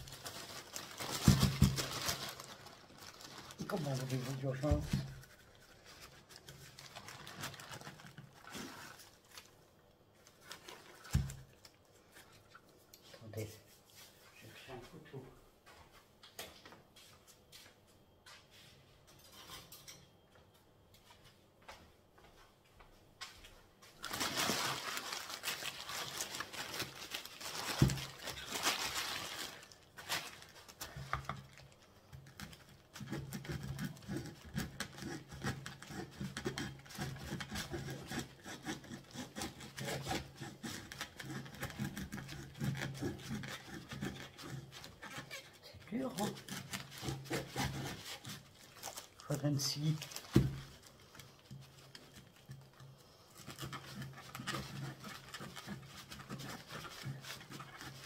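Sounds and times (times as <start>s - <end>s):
plastic bag rustling: 0.0s - 12.6s, 23.9s - 58.0s
knife sawing through coir brick: 33.0s - 45.3s, 45.9s - 48.5s, 53.4s - 58.0s.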